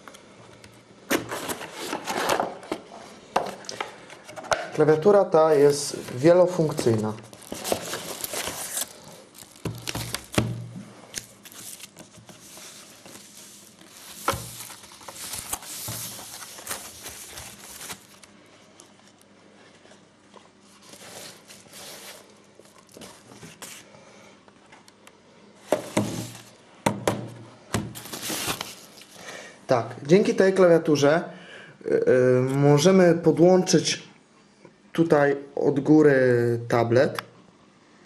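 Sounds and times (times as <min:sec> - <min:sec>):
plastic packaging crinkling: 0:05.5 - 0:19.2, 0:20.7 - 0:23.8, 0:28.0 - 0:29.2.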